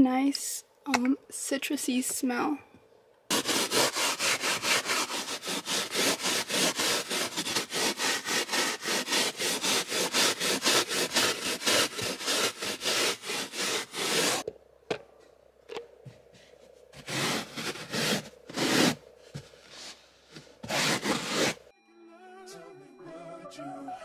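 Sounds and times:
brush scrubbing carpet: 0:03.3 - 0:14.4, 0:17.0 - 0:21.7.

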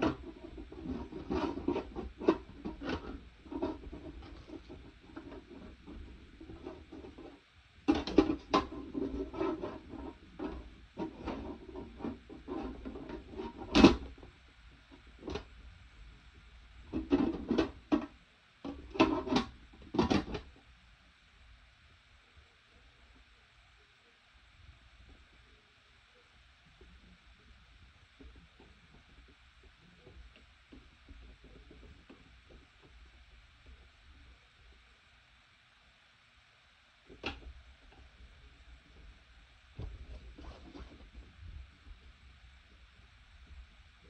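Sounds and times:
humidifier being handled: 0:00.0 - 0:15.6, 0:16.8 - 0:20.6, 0:37.1 - 0:38.2, 0:39.8 - 0:42.1.

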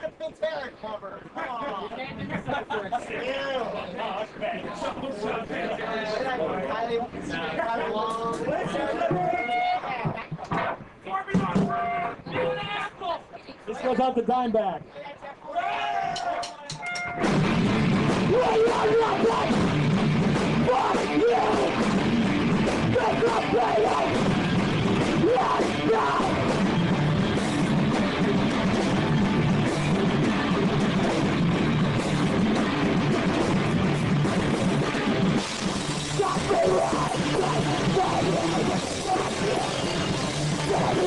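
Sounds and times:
drum kit and cymbal hits: 0:16.7 - 0:41.0
electric guitar: 0:17.2 - 0:41.0.

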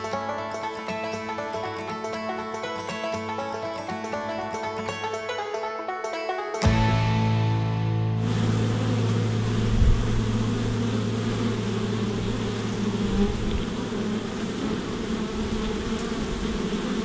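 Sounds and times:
honey bees buzzing: 0:08.2 - 0:17.0.

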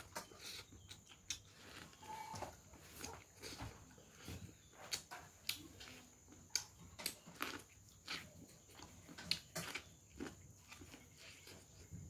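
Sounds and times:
crunching corn: 0:00.0 - 0:12.0.

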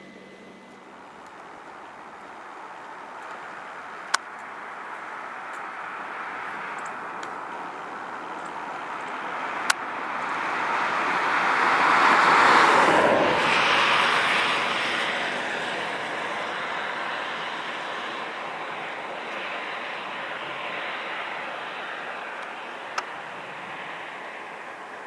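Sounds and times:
vehicle driving past: 0:07.9 - 0:24.6.

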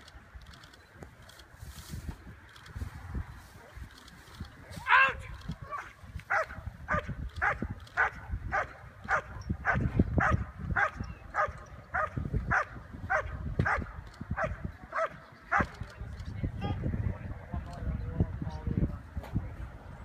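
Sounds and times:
dog barking: 0:05.8 - 0:15.7.

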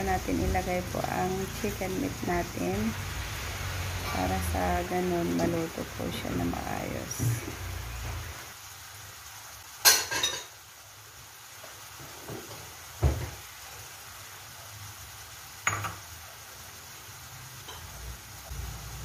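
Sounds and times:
vegetables sizzling in oil: 0:00.0 - 0:19.0
kitchenware clinks and knocks: 0:15.7 - 0:16.0.

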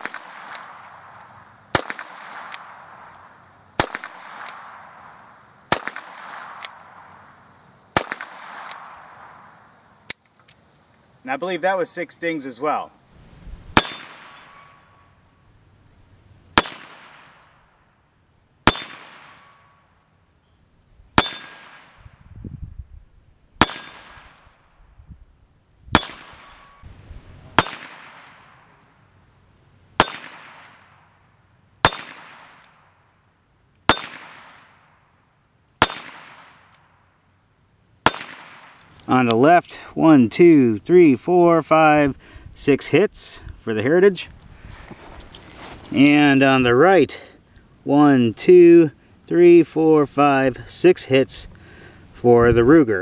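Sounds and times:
steel target clanging: 0:13.8 - 0:15.0, 0:16.6 - 0:17.3, 0:18.7 - 0:19.7, 0:21.2 - 0:22.0, 0:23.6 - 0:24.4, 0:26.0 - 0:26.9, 0:33.9 - 0:34.2.

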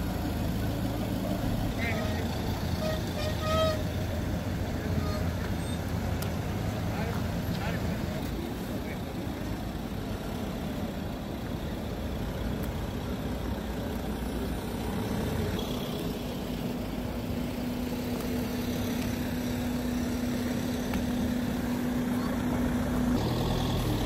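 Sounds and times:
motorhome engines passing slowly: 0:00.0 - 0:24.0.

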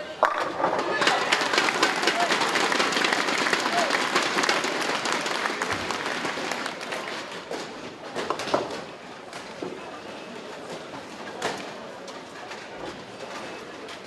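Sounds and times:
crowd applauding: 0:00.9 - 0:07.4.

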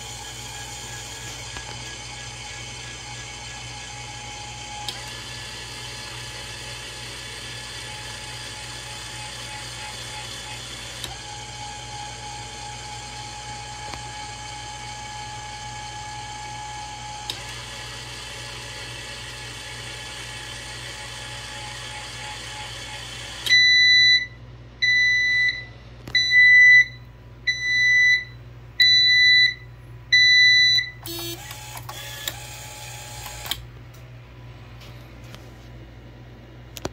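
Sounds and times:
actuator motor whirring: 0:00.0 - 0:23.7, 0:31.0 - 0:33.8
electronic buzzer beeps: 0:30.2 - 0:33.4.

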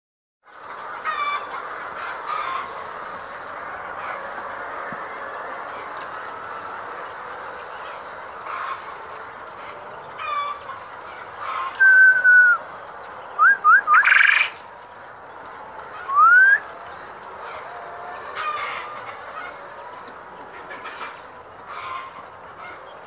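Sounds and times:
quail whistled peeps: 0:11.8 - 0:12.6, 0:13.4 - 0:14.6, 0:16.0 - 0:16.7.

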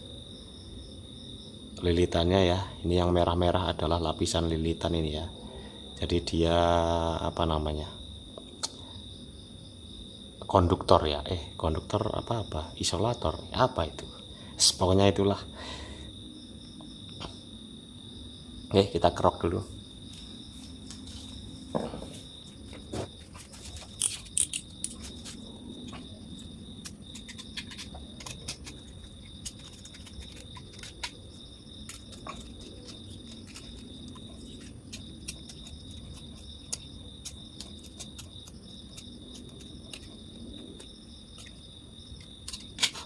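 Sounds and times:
wire scraping scratches and clicks: 0:22.9 - 0:41.6, 0:42.4 - 0:43.0.

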